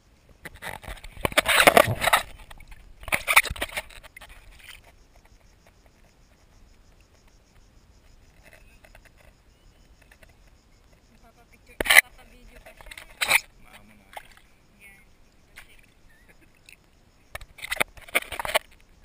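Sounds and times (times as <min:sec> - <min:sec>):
sloshing and scraping in shallow water: 0:00.2 - 0:19.0.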